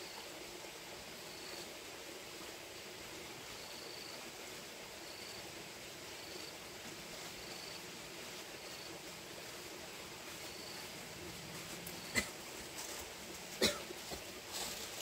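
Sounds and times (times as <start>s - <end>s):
steady background hiss: 0.0s - 15.0s
insect chirping: 1.0s - 1.7s, 3.4s - 6.7s, 7.3s - 7.9s, 10.2s - 11.1s, 11.9s - 12.5s.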